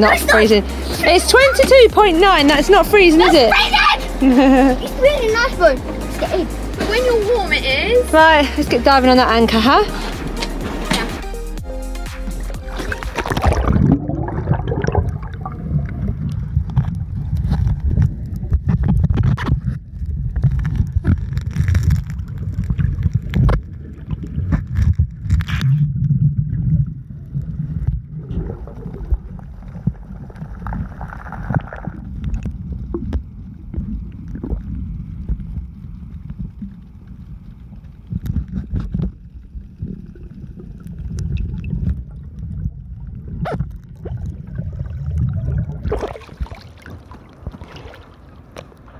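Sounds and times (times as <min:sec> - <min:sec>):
underwater clicks: 0:12.2 - 0:26.2
bubbling: 0:12.4 - 0:48.9
underwater rumble of moving water: 0:12.4 - 0:48.9.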